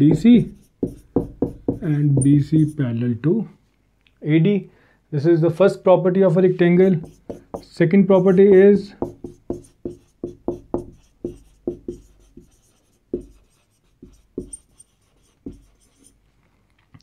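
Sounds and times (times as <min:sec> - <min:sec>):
marker writing on whiteboard: 0:00.0 - 0:02.8, 0:06.8 - 0:16.2.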